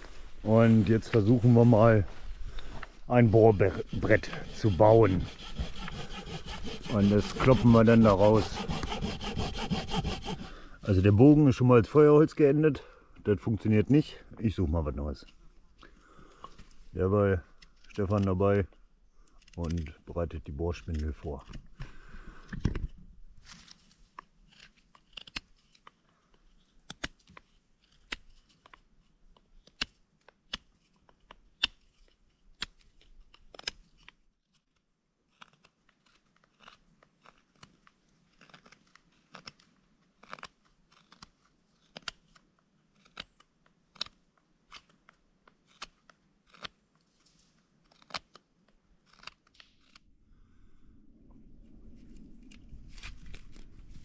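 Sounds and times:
knife whittling wood: 3.1 - 10.7.

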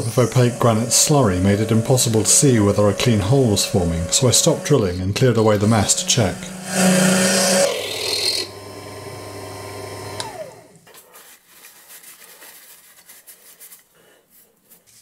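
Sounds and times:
drill motor humming: 0.0 - 10.8
paper towel rustling: 11.0 - 15.0.

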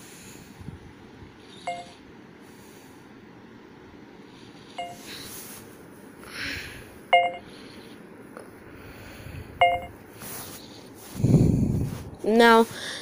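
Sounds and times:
short electronic beeps: 1.7 - 2.0, 4.8 - 5.0, 7.2 - 7.5, 9.6 - 10.0
soft rustle: 10.1 - 12.8.

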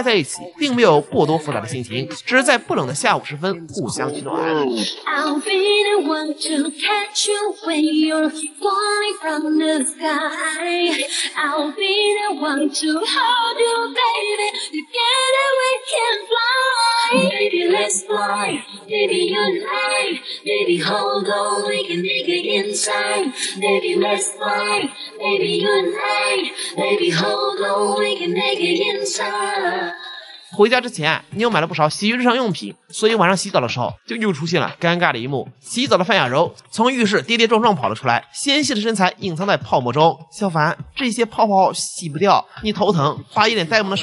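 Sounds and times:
woman singing pop song: 3.8 - 30.6.

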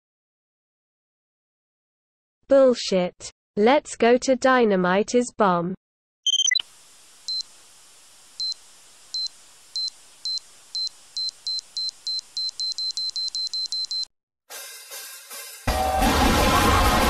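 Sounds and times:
short high-pitched electronic beeps: 6.3 - 6.6, 7.3 - 7.5, 9.2 - 14.1.

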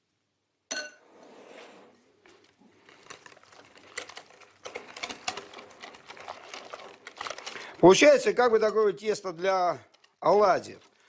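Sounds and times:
batter stirred in bowl: 2.1 - 8.7.

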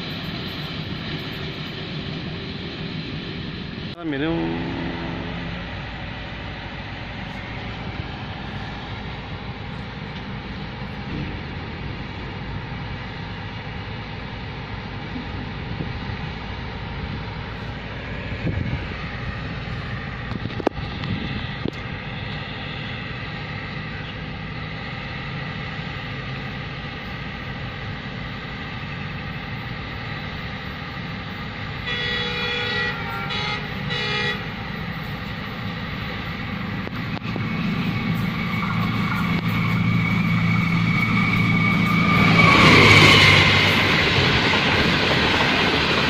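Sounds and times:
diesel locomotive rumbling: 0.0 - 46.0
locomotive horn blasts: 4.3 - 6.3, 31.8 - 34.6.

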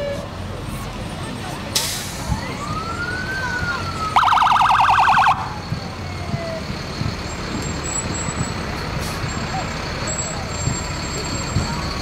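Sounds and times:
truck engine: 0.0 - 12.0
wailing siren: 2.3 - 6.7
warbling electronic siren: 2.5 - 6.2.

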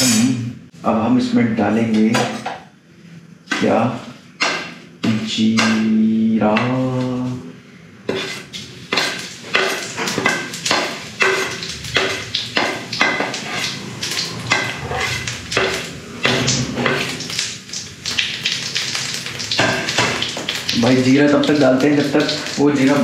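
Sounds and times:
seeds sizzling in hot oil: 8.1 - 23.0.

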